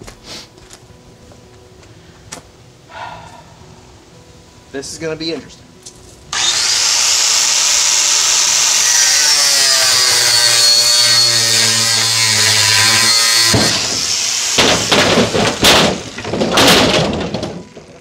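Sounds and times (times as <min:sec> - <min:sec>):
angle grinder cutting metal: 0:06.3 - 0:16.1
wooden staves clattering on metal: 0:14.6 - 0:18.0.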